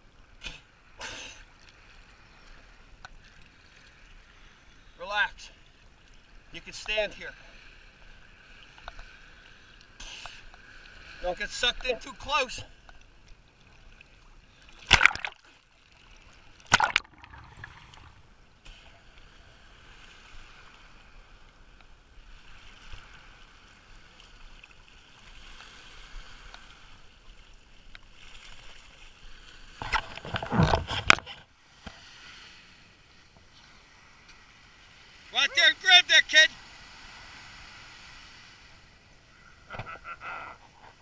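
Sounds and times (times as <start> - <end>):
sea water splashing: 0.2 - 41.0
low wash of surf: 16.8 - 27.2, 31.5 - 41.0.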